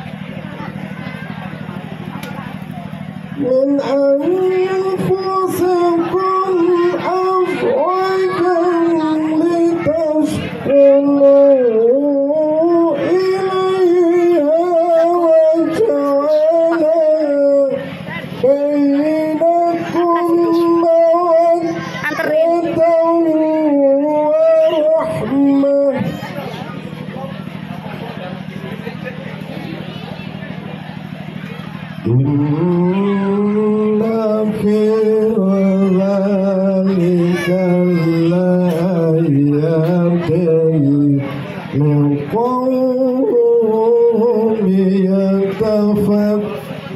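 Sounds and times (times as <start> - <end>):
man chanting into microphone: 3.4 - 26.3, 32.0 - 46.6.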